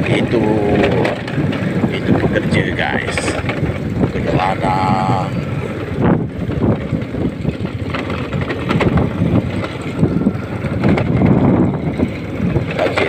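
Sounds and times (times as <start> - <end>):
small motorcycle engine rumbling: 0.0 - 13.0.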